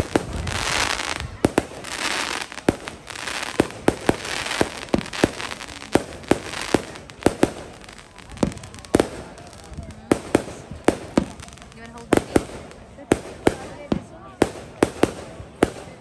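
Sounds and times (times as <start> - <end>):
crackling hiss of sparks: 0.0 - 16.0
fireworks bangs: 0.0 - 16.0.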